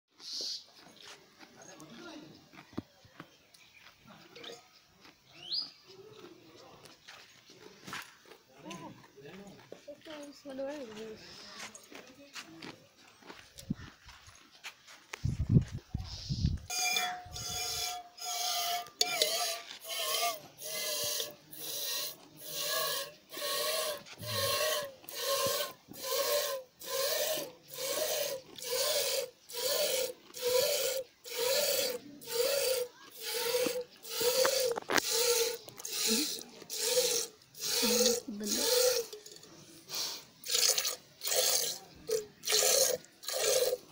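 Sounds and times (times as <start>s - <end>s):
milk squirting into metal bowl: 16.9s - 39.5s, 40.4s - 43.9s.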